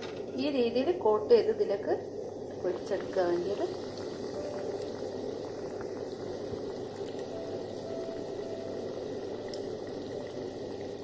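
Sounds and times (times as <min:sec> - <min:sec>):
hot oil bubbling and sizzling: 0:00.0 - 0:11.0.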